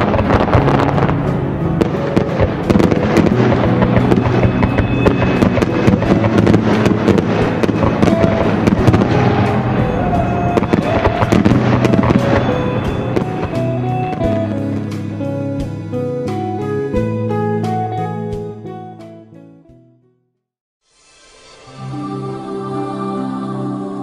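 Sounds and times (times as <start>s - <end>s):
fireworks banging: 0.0s - 15.2s
background music: 0.0s - 20.1s, 20.9s - 24.0s.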